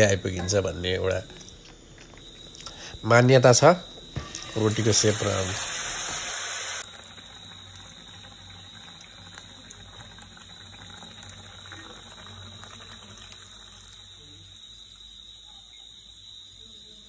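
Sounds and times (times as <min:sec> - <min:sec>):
batter sizzling in hot oil: 0:04.2 - 0:15.6.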